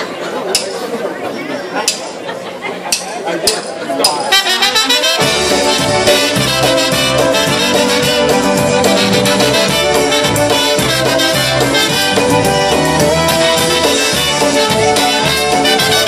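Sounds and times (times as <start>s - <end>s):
polka band playing: 4.0s - 16.0s
trumpets playing lead: 4.3s - 16.0s.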